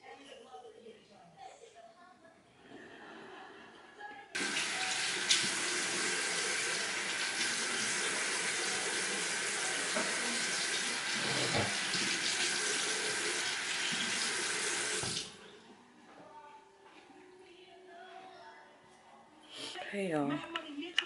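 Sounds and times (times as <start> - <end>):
tap running into sink: 4.4 - 15.3.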